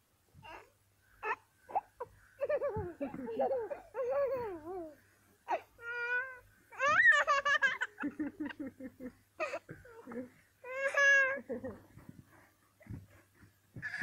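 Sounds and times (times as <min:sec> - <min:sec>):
toddler laughing: 0:01.7 - 0:04.9, 0:06.8 - 0:12.0, 0:13.8 - 0:14.0.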